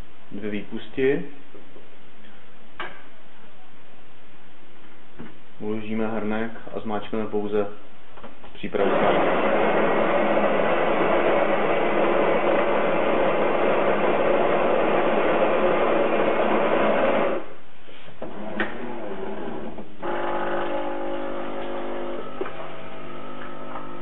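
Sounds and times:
coffee grinder grinding beans: 8.8 - 17.4, 20.0 - 24.0
steady machine hum: 8.8 - 24.0.

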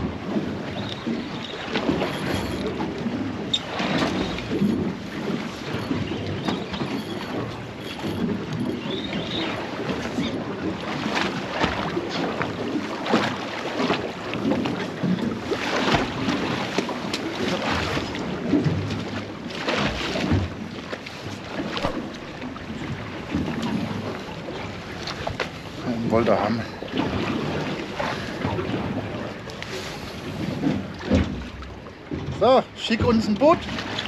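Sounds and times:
water slapping against boat: 0.0 - 34.0
fish thrashing splashes: 21.4 - 24.6.

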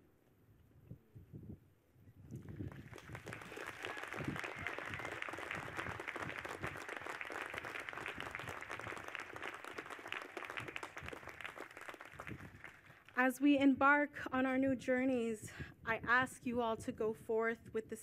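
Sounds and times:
audience applause: 2.6 - 13.2.

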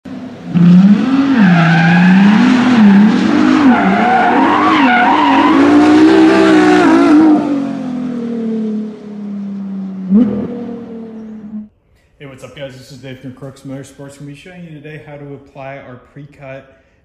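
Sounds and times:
car engine revving: 0.1 - 11.7.

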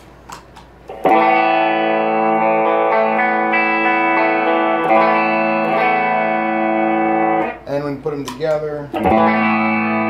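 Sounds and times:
distorted electric guitar lead notes: 0.9 - 7.7, 8.9 - 10.0.

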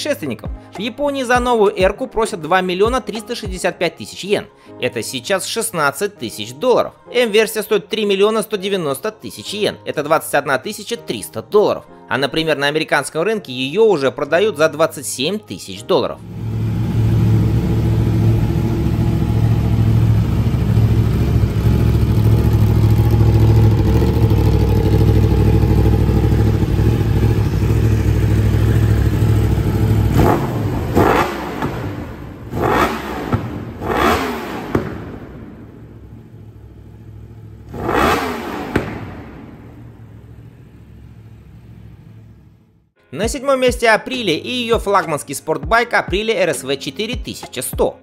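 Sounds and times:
motorcycle engine idling: 16.2 - 42.7
motorcycle throttle blips: 16.3 - 42.2.

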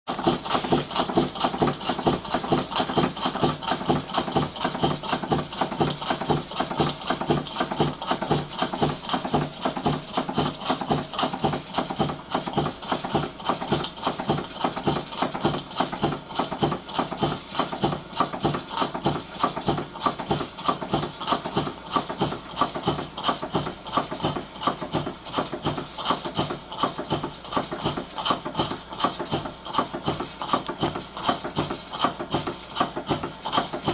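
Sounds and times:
model engine knocking: 0.1 - 33.9.

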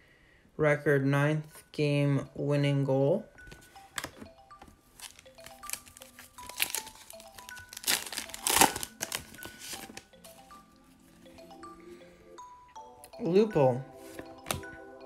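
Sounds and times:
light background music: 0.7 - 15.0
foil wrapper crinkling and tearing: 5.0 - 10.1.

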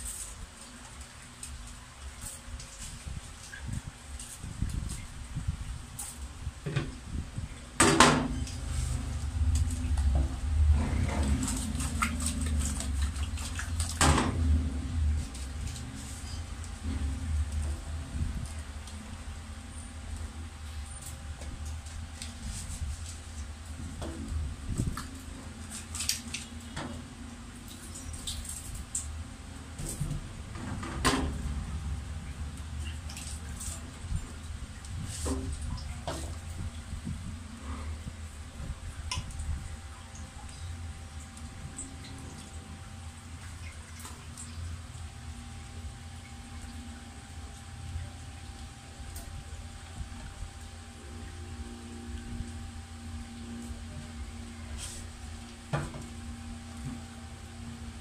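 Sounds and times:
steady low hum: 0.0 - 58.0
low rumble: 8.4 - 19.6.

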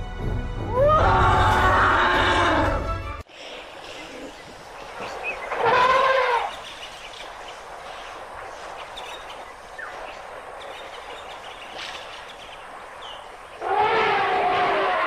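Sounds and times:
elephant trumpeting: 5.5 - 6.6, 13.6 - 15.0.

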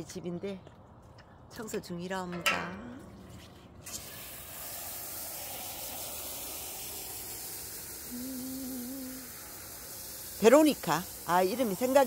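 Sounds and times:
water jet spraying: 3.9 - 12.0.

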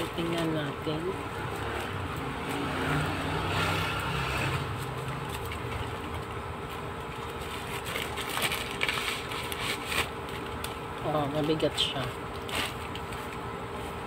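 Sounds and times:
steady low hum: 0.0 - 14.0
plastic packaging crinkling: 4.8 - 14.0.

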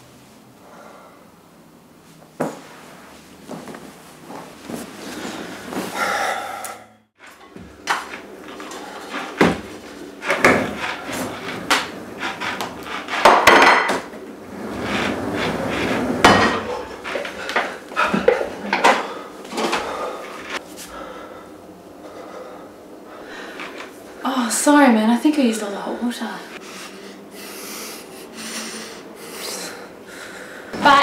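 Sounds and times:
dishes and pans clanking: 10.2 - 14.2, 15.8 - 20.6.

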